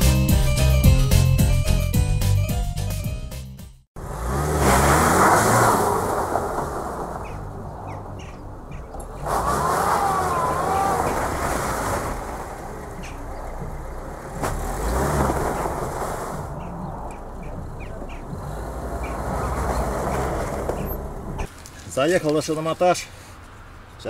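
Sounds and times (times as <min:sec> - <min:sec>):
car engine revving hard: 0:04.0 - 0:08.0, 0:08.9 - 0:21.5.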